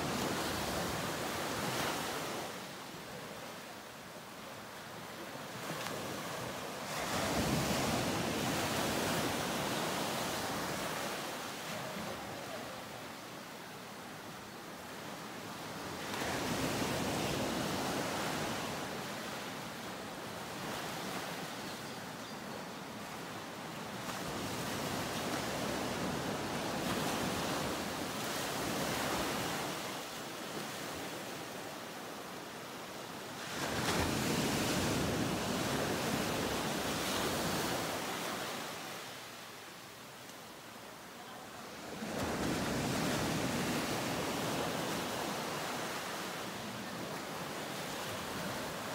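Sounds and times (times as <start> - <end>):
ocean waves breaking: 4.6 - 13.0, 33.3 - 39.5, 41.7 - 48.9.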